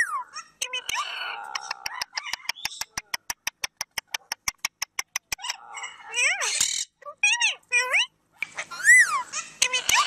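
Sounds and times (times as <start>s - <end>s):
parakeet chattering: 4.4s - 10.0s
parakeet squawk: 5.4s - 10.0s.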